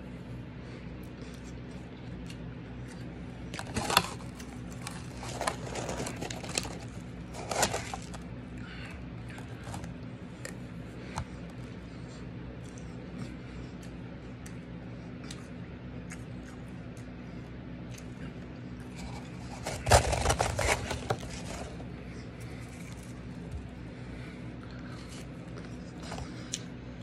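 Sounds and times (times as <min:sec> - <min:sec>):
spoon scooping crunchy ice: 0:03.5 - 0:08.2, 0:18.9 - 0:21.9.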